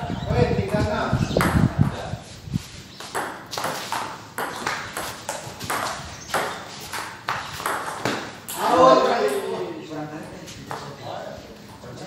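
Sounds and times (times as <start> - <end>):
men's voices: 0.0 - 2.3, 8.3 - 12.0.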